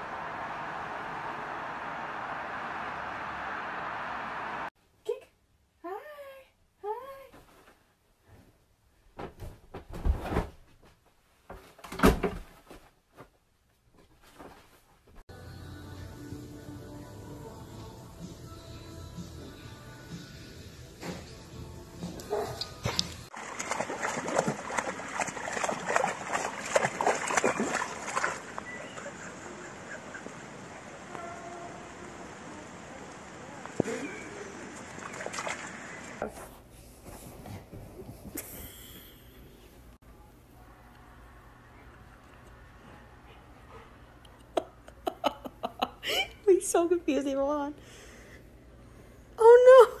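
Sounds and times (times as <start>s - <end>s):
dog splashing in muddy puddle: 22.9s - 29.3s, 34.1s - 36.2s.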